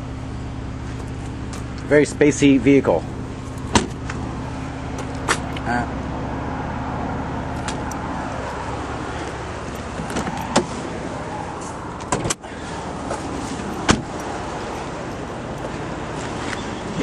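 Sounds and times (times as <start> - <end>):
car engine idling: 0.0 - 17.0
thump on car body: 3.7 - 4.0, 13.9 - 14.1.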